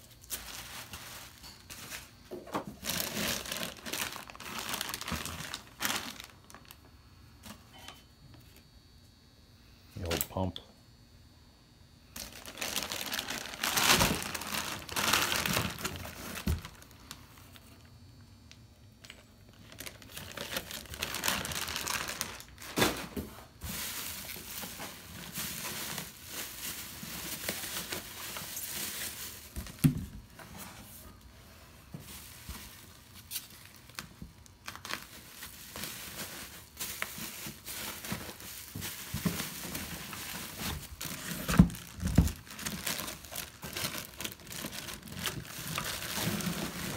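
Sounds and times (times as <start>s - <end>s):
bubble wrap crinkling: 0.0s - 6.9s, 12.1s - 17.9s, 18.5s - 30.4s, 31.9s - 46.9s.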